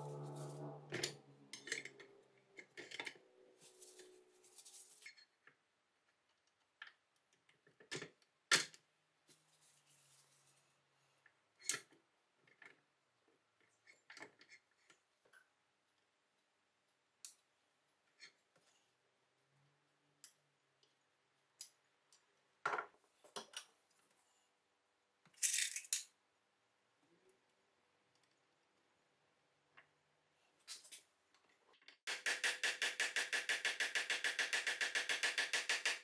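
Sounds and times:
music track: 0:00.0 - 0:01.5.

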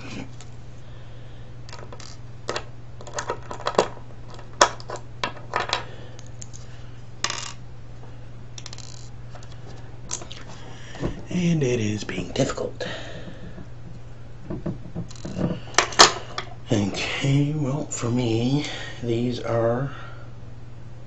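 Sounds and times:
screwdriver and metal parts clicking: 0:01.7 - 0:05.8, 0:08.6 - 0:09.5.

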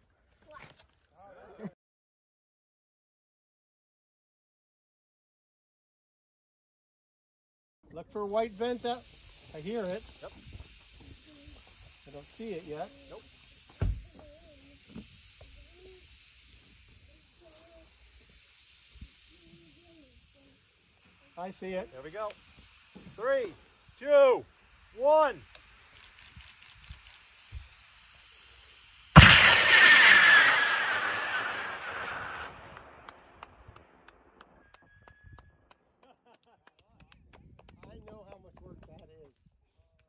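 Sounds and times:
faint outdoor hiss: 0:07.8 - 0:34.6
rocket motor exhaust rushing: 0:08.1 - 0:34.6
faint scattered clicks: 0:25.4 - 0:27.2.

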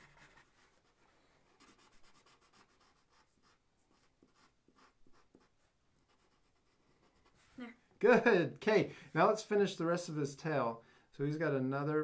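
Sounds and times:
markers drawing on paper: 0:00.0 - 0:07.6.

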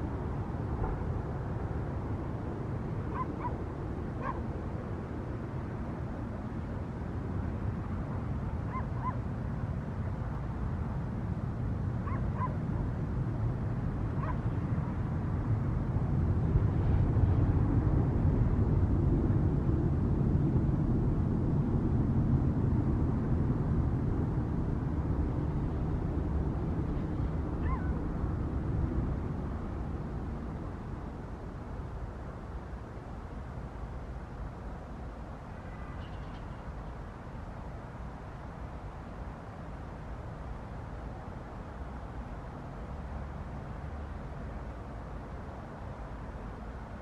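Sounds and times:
airplane engine rumble: 0:00.0 - 0:47.0
faint animal calls: 0:03.1 - 0:03.6, 0:04.2 - 0:04.4, 0:08.7 - 0:09.2, 0:12.0 - 0:12.6, 0:14.2 - 0:14.5, 0:27.6 - 0:28.0.

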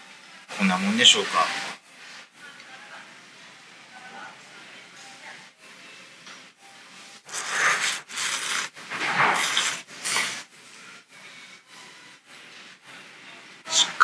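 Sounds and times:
person slurping noodles: 0:07.3 - 0:10.4.

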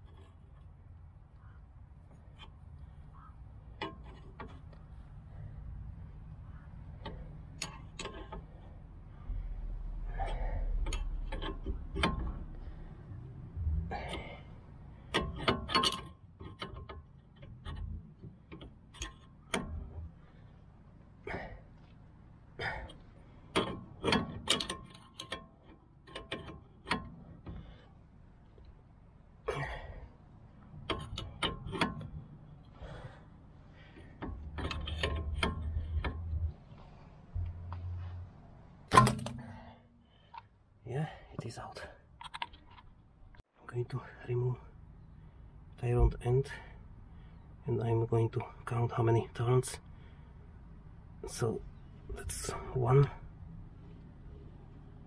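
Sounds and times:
spanner clicking on metal bolt: 0:07.0 - 0:08.5, 0:15.0 - 0:19.9, 0:22.9 - 0:27.8, 0:30.7 - 0:32.3, 0:34.2 - 0:36.6, 0:38.9 - 0:39.7.

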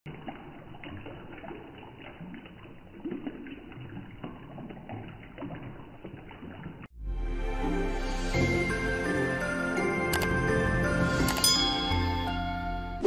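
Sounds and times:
water trickling and splashing: 0:00.0 - 0:07.0
water drips pattering: 0:00.1 - 0:06.9.

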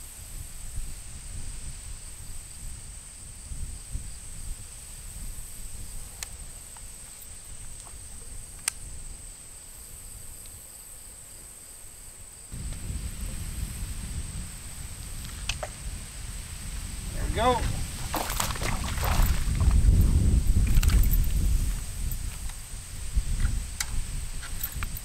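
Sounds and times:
wind rumble on microphone: 0:00.0 - 0:10.6, 0:12.4 - 0:25.0
insects droning: 0:00.0 - 0:25.0
faint clicks: 0:08.6 - 0:08.8.

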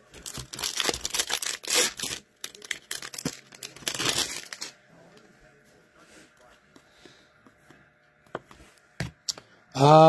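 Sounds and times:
foil wrapper tearing and crinkling: 0:00.1 - 0:04.8.

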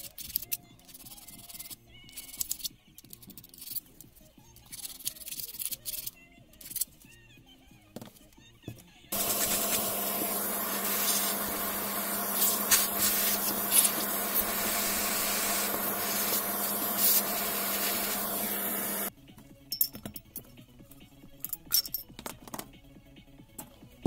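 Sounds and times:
vacuum cleaner humming: 0:09.1 - 0:19.1.

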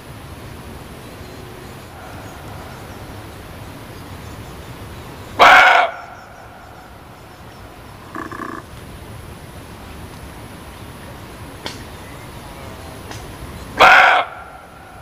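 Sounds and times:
background hiss: 0:00.0 - 0:15.0
deer barking: 0:05.4 - 0:06.1, 0:08.0 - 0:08.6, 0:13.8 - 0:14.7.

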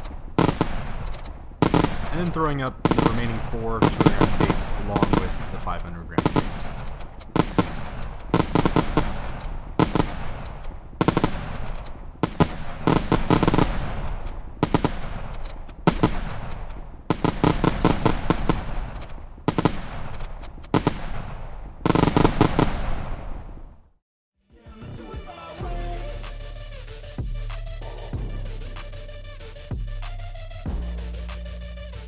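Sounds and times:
fireworks bursting with sharp bangs: 0:00.0 - 0:24.0.

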